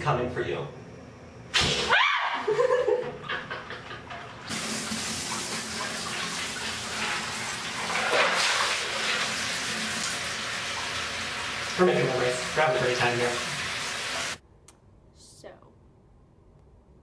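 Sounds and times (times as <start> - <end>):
bathtub water sloshing and splashing: 3.0 - 14.4
running water rush: 4.5 - 14.4.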